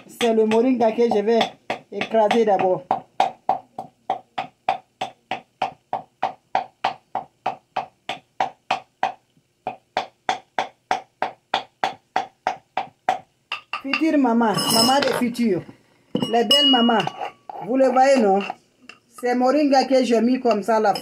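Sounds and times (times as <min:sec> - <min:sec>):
pestle pounding in wooden mortar: 0:00.0 - 0:13.9.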